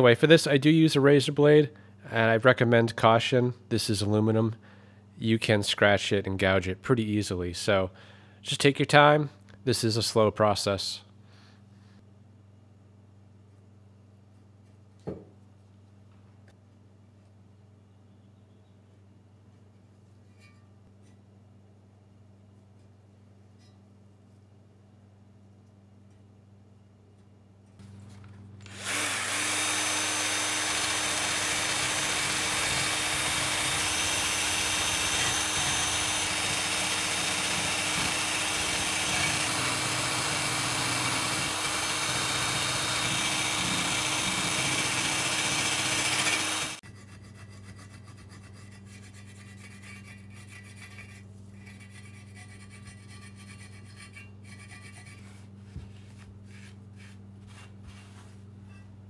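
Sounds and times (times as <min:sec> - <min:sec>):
grinder scrubbing metal: 0:28.7 - 0:55.2
cloth rubbing a surface: 0:47.9 - 0:58.8.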